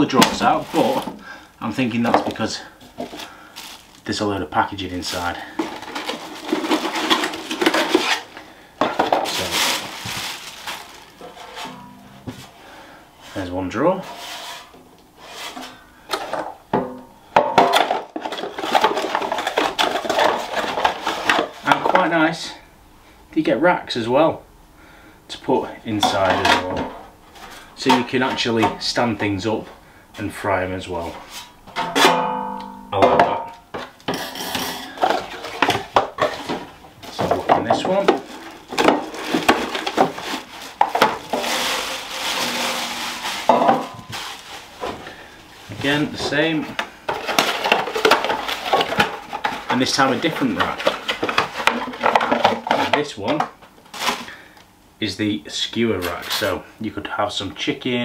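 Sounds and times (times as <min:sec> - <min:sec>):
plastic wrap rustling: 0:00.0 - 0:16.7, 0:17.6 - 0:22.1, 0:33.7 - 0:53.0, 0:53.6 - 0:54.5
cardboard box rustling and scraping: 0:05.1 - 0:08.3, 0:37.3 - 0:45.0.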